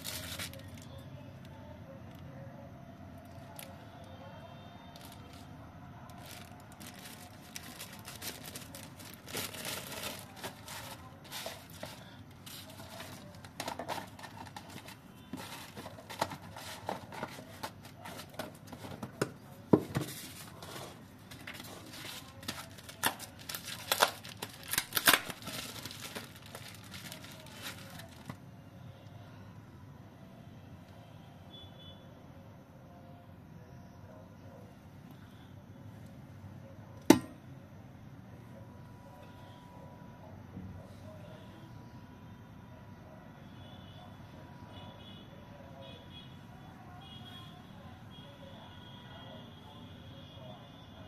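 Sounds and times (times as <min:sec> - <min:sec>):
packaging rustling and crinkling: 0:00.0 - 0:00.9, 0:06.1 - 0:28.4.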